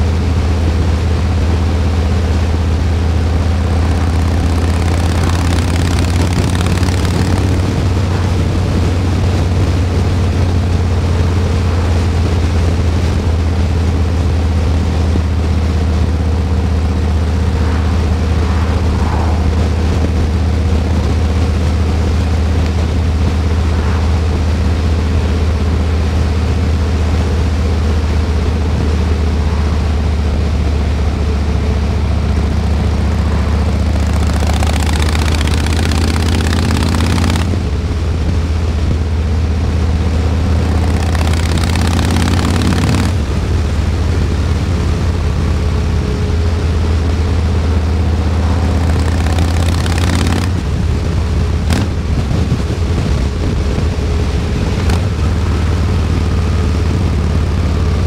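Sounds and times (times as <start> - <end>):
loud rushing noise: 0.0 - 58.0
motorcycle engine running: 0.0 - 58.0
sharp clicks: 3.9 - 7.8, 34.0 - 37.6, 40.7 - 43.2, 48.7 - 50.6.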